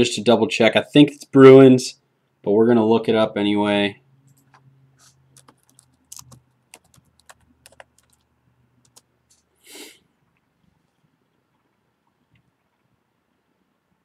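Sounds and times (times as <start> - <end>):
laptop keyboard typing: 4.4 - 9.1.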